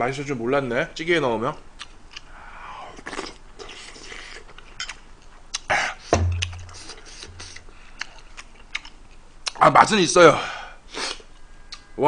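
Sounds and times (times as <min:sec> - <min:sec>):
wet chewing sounds: 0:02.9 - 0:05.7, 0:06.4 - 0:09.6
sharp mouth clicks: 0:04.8 - 0:09.6.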